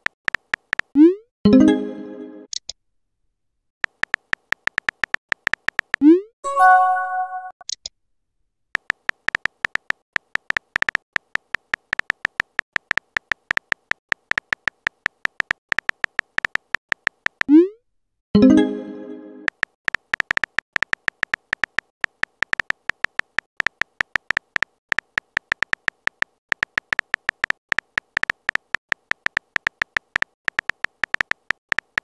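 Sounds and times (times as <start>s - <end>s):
phone keyboard tapping clicks: 3.8s - 6.0s, 8.8s - 17.5s, 19.5s - 32.0s
message sent chime: 6.4s - 7.6s, 18.4s - 19.5s.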